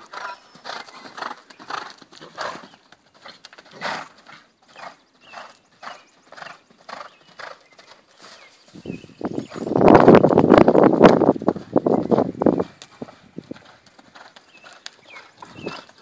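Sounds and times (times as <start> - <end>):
horse hoofbeats on dirt: 0.0 - 16.0
horse breathing: 5.2 - 16.0.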